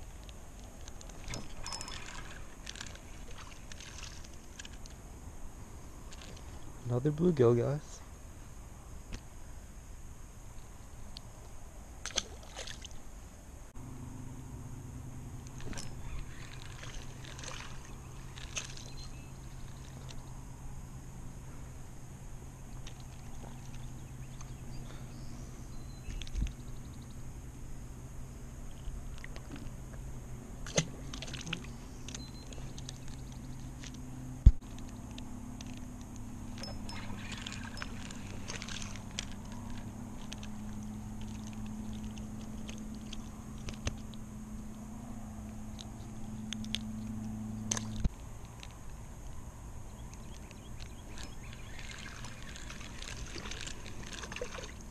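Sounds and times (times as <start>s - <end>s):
reel clicks: 0.0s - 5.0s, 15.4s - 20.4s, 30.6s - 34.0s, 34.6s - 44.8s.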